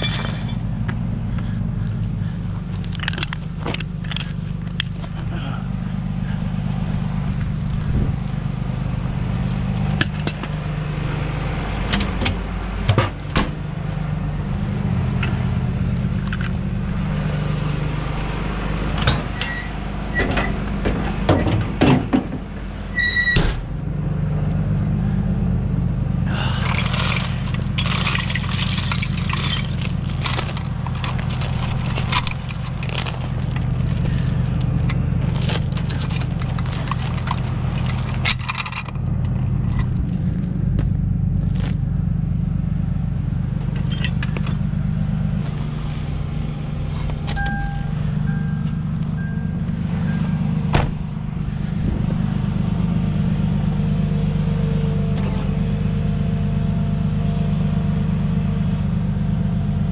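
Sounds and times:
tow chains rattling: 0.0 - 1.0, 26.3 - 42.0, 43.7 - 44.7
truck engine idling: 0.0 - 59.9
knocks and clanks: 20.2 - 22.5, 26.5 - 42.0, 50.7 - 51.2
short beeps: 47.4 - 50.4.

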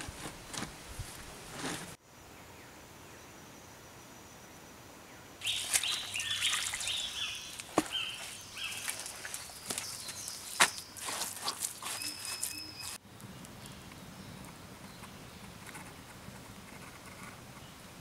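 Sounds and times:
dirt and stones scraped by hand: 0.0 - 2.0, 7.6 - 13.0
birds singing: 5.1 - 15.6
faint steady high tone: 11.9 - 13.0.

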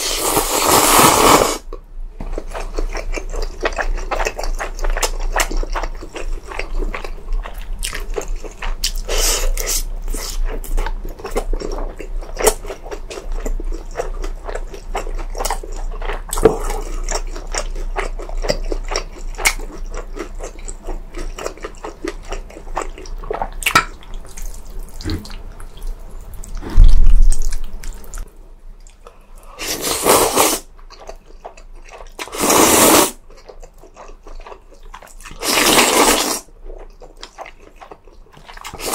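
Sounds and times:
steady low hum: 1.6 - 30.0
wet chewing and smacking: 2.2 - 29.2, 30.7 - 32.4, 33.2 - 38.9.

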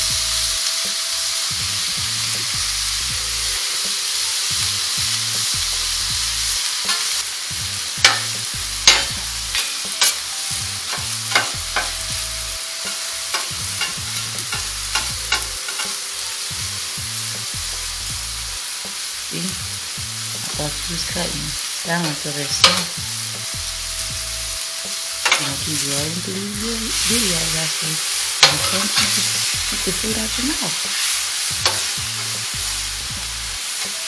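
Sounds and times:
meat sizzling on griddle: 0.0 - 34.0
spatula scraping and clacking: 8.0 - 10.3, 10.9 - 12.0, 12.9 - 16.0, 28.4 - 29.5, 30.9 - 32.5.

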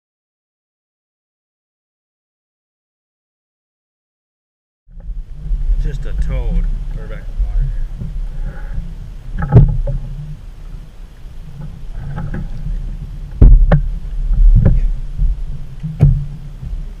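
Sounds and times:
steady low rumble: 4.9 - 17.0
knocks and thumps on boat deck: 5.0 - 10.4, 11.4 - 17.0.

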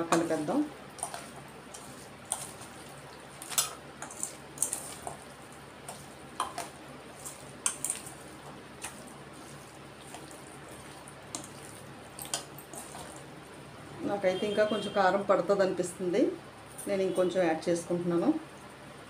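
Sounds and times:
wet squelches of hand mixing: 0.0 - 13.7.

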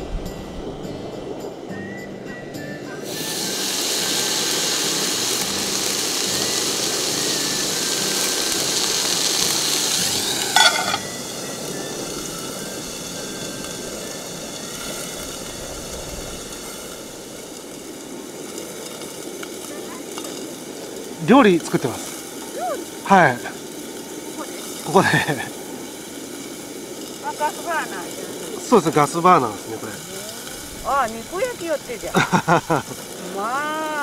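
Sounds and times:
steak sizzling in skillet: 0.0 - 34.0
metal pot lid clank: 10.4 - 11.1.

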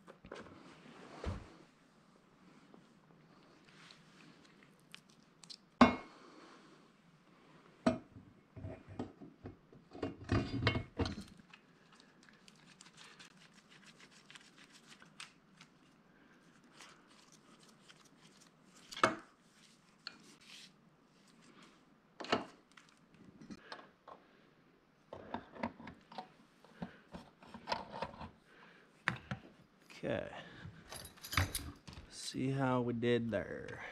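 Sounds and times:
metal parts clinking: 30.9 - 32.0.

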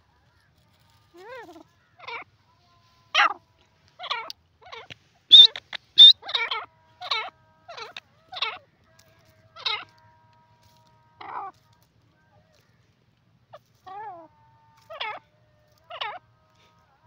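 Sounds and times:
francolin calling harsh notes: 5.3 - 7.8.

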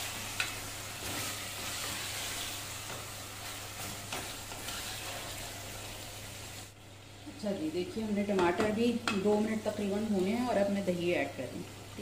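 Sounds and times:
food sizzling in oil: 0.0 - 12.0
wooden spatula stirring: 0.1 - 6.0.

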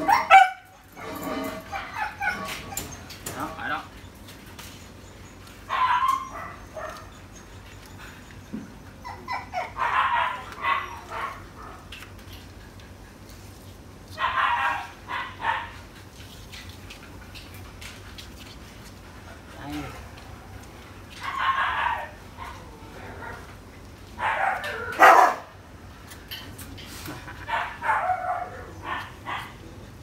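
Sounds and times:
puppies yelping and whining: 0.0 - 13.3.

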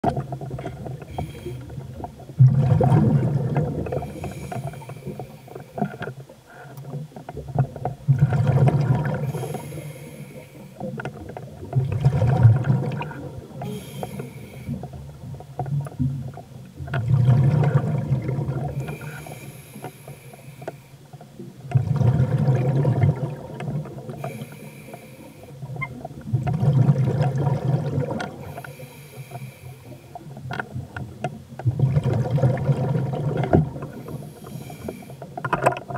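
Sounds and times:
bubbly exhalations underwater: 0.0 - 5.1, 6.9 - 9.9, 10.8 - 14.0, 15.2 - 19.2, 21.7 - 24.4, 25.6 - 28.7, 30.7 - 34.2
regulator inhalation hiss: 9.2 - 10.8, 13.6 - 14.8, 18.8 - 21.0, 24.2 - 25.6, 28.5 - 30.2, 34.0 - 35.2.

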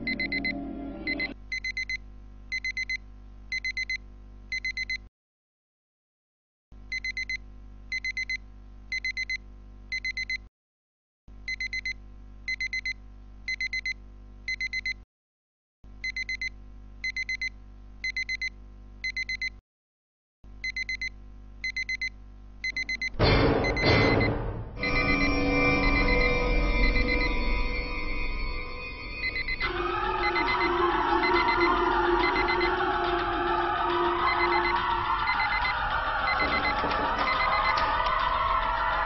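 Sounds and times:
music: 0.0 - 1.4, 23.2 - 39.0
alarm clock beeping: 0.0 - 1.9, 22.6 - 39.0.

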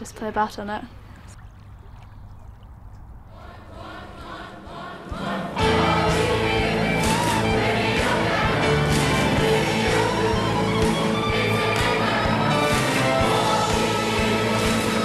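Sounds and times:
choir singing with band: 3.3 - 15.0.

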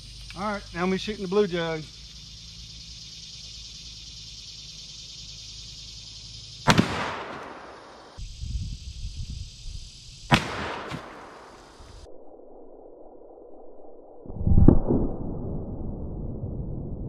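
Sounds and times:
revolver gunshots with echo: 6.7 - 8.2, 10.3 - 11.6.

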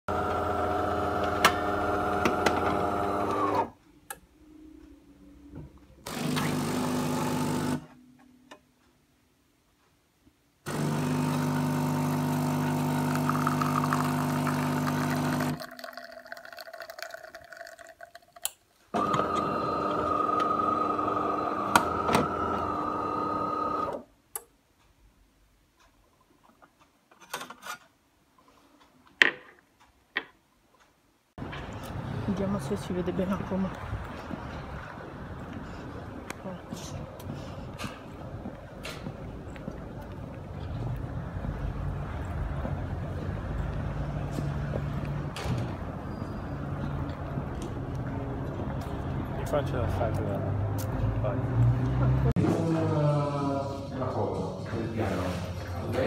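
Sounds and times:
espresso machine humming: 0.1 - 3.6, 6.1 - 7.8, 10.7 - 16.8, 19.0 - 23.9
coffee pouring into a cup: 10.8 - 20.6.

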